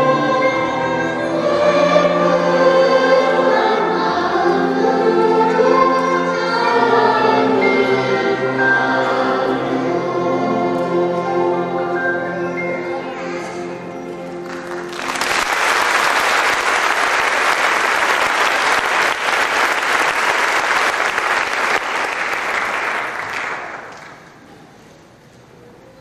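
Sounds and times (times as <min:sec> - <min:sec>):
choir and orchestra chord: 0:00.0 - 0:15.3
audience applause: 0:14.4 - 0:24.4.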